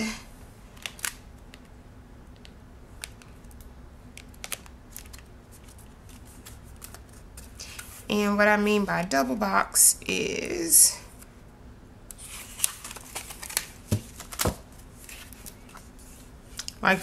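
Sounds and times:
faint room hum: 0:00.0 - 0:17.0
sticker sheets flipping: 0:04.2 - 0:08.0, 0:12.2 - 0:16.7.

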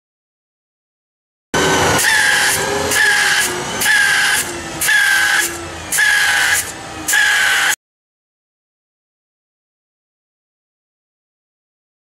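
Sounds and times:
steady machine noise: 0:01.6 - 0:07.8
spray guns hissing with whine: 0:01.7 - 0:07.8.

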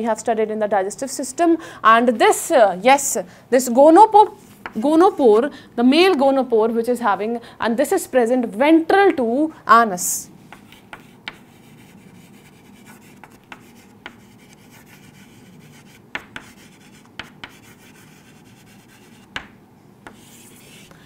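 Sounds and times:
chalk scratching on chalkboard: 0:10.5 - 0:19.5, 0:20.1 - 0:20.9
chalk tapping on board: 0:10.5 - 0:20.9.

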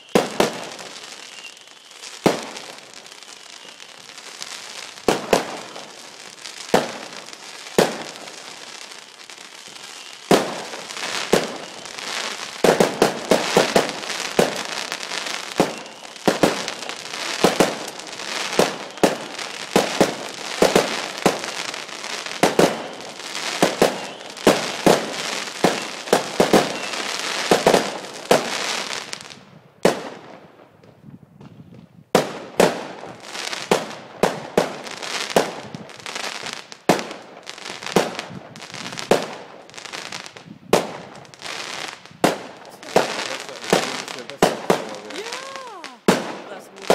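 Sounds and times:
fireworks bangs: 0:00.0 - 0:46.9
fireworks crackle: 0:00.0 - 0:46.9.

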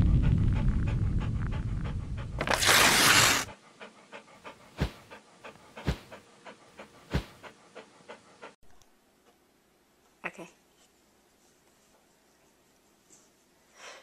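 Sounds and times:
low rumble: 0:00.0 - 0:02.4
dog panting: 0:00.2 - 0:02.5, 0:03.1 - 0:08.6.

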